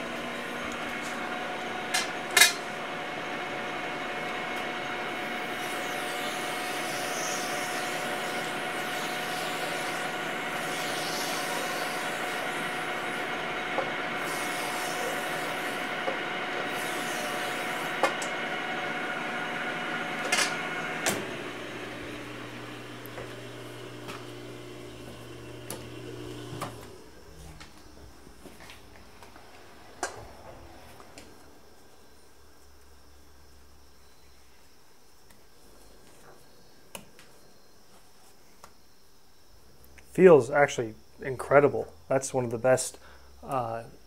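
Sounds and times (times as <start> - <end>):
lathe humming: 0.0 - 31.2
motors whining: 0.0 - 31.5.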